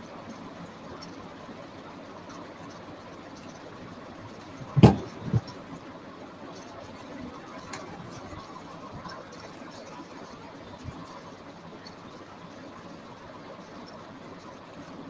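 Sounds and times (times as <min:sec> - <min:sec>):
thumps: 0:04.6 - 0:05.5.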